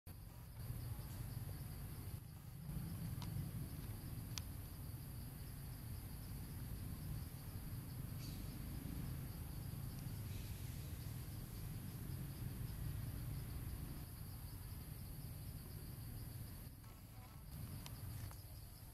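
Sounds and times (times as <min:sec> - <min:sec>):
low background rumble: 0:00.1 - 0:16.8
insects chirring: 0:00.1 - 0:18.9
faint clicks: 0:03.1 - 0:04.5.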